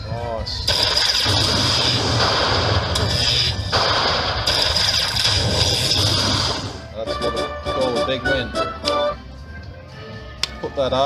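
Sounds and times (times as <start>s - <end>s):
slot machine electric zap crackle: 0.7s - 6.8s.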